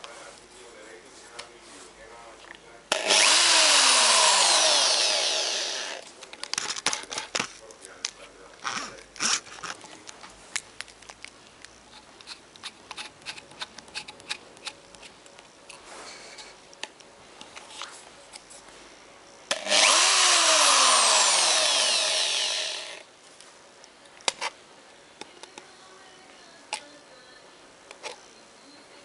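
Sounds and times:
drill rewinding tape at high speed: 2.9 - 6.0, 19.5 - 23.0.

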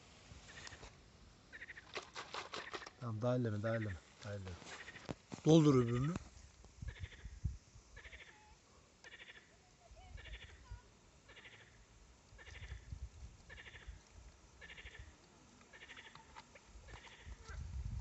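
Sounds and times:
frogs croaking: 1.5 - 2.0, 3.6 - 5.2, 6.8 - 17.5.

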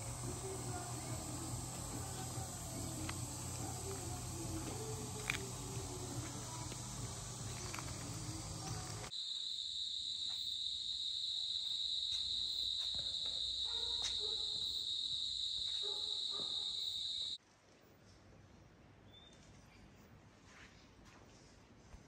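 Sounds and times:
background noise with low hum: 0.0 - 9.1
insect chorus droning: 0.0 - 17.4.

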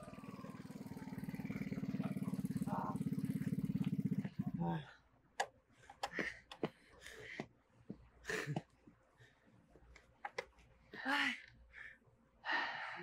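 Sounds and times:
person gasping breath: 10.9 - 13.0.

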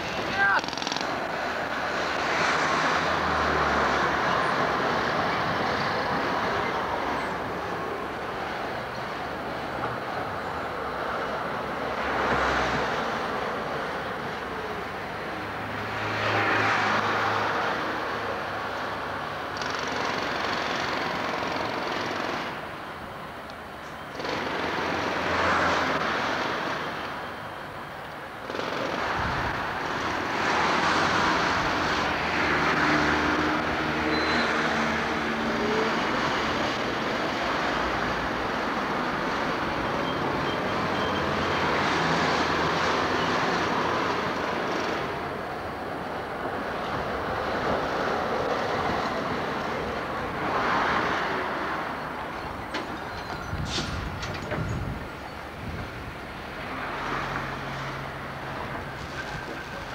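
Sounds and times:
street traffic: 0.0 - 59.9
tram wheels rumbling on track: 24.2 - 59.9.

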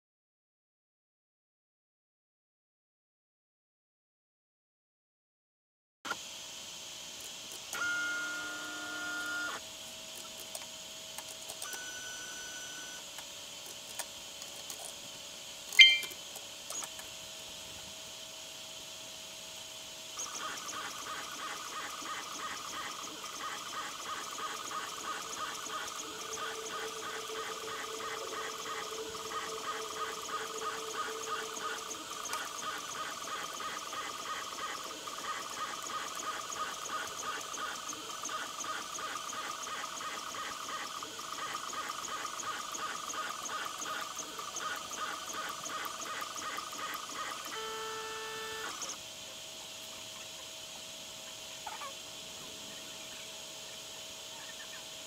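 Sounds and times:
stepper motors whining: 7.5 - 9.6, 11.2 - 13.2, 20.1 - 49.0
brief tone: 15.8 - 16.2.

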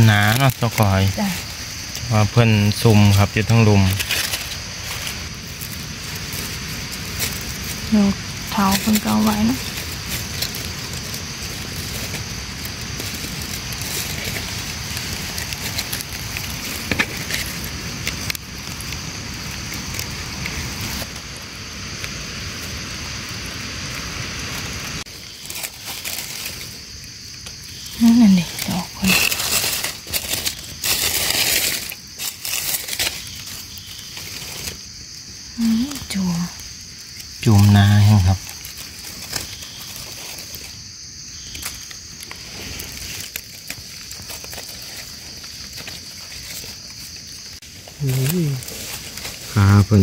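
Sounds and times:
dry leaves rustling: 0.0 - 50.0
steady high hiss: 0.0 - 50.0.

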